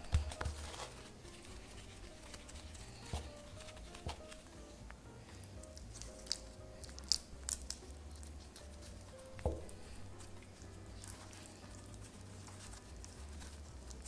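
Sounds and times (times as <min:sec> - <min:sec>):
squishy dough handling: 0:00.0 - 0:14.0
soft knock: 0:09.4 - 0:09.8.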